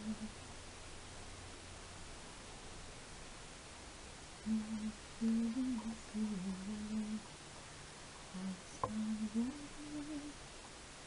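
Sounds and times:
woman softly humming: 0.0 - 0.4, 4.4 - 7.3, 8.3 - 10.4.

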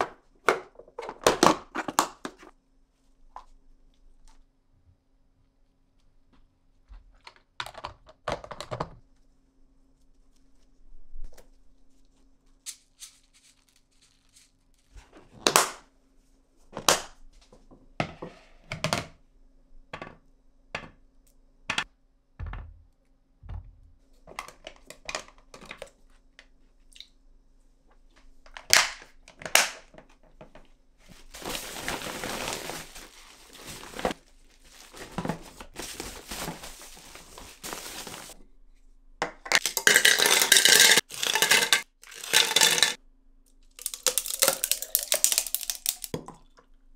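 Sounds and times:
objects knocking and clicking: 39.2 - 43.0.

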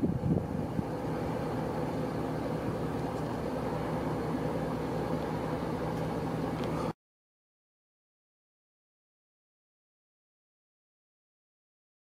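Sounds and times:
vehicle engine and road noise: 0.0 - 7.0.

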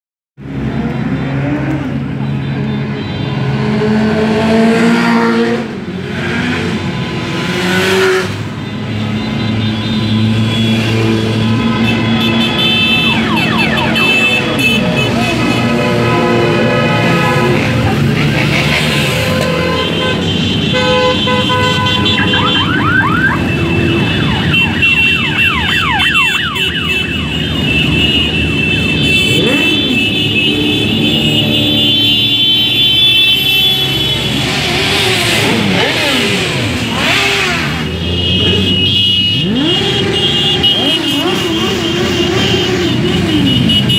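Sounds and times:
motorcycles revving past: 13.2 - 19.9, 28.9 - 31.9, 34.1 - 43.6.

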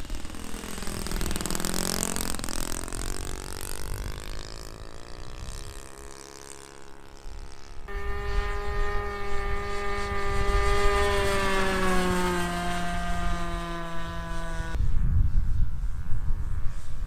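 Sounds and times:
model airplane engine buzzing: 0.0 - 17.0
wind rumble on microphone: 7.2 - 17.0.

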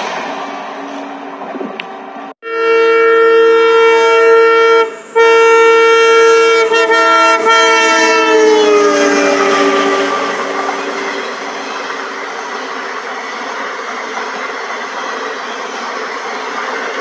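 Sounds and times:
locomotive air horn blast: 2.4 - 12.2
train wheels rumbling: 3.5 - 17.0.

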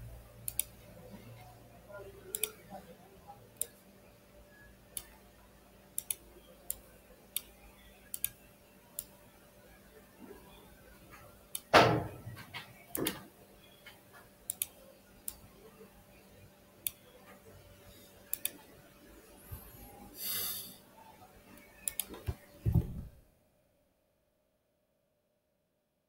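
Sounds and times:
computer mouse clicks: 0.4 - 0.8, 2.3 - 2.6, 3.6 - 3.8, 4.9 - 5.2, 5.9 - 9.2, 11.2 - 11.7, 12.6 - 15.5, 16.8 - 17.2, 18.2 - 18.7, 21.5 - 23.0
short breath-like hiss: 20.2 - 20.8.

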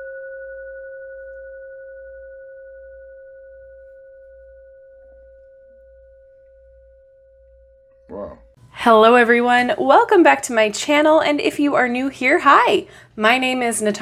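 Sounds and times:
singing bowl ringing: 0.0 - 8.0.

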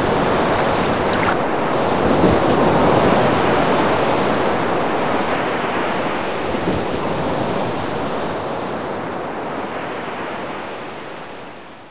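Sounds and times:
ocean surf on a beach: 0.0 - 1.4
wind on microphone: 0.0 - 1.4.

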